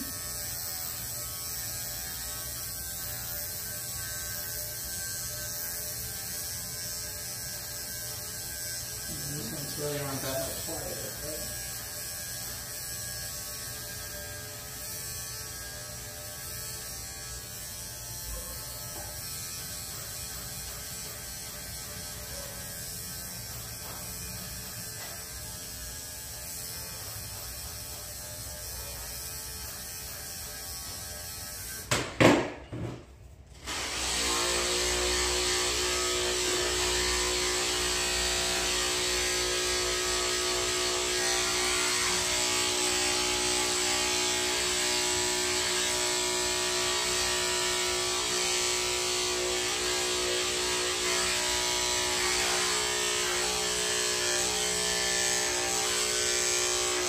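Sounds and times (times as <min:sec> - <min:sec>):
dog clippers running: 0:00.0 - 0:33.0, 0:33.6 - 0:57.0
loud knock: 0:31.9 - 0:33.1.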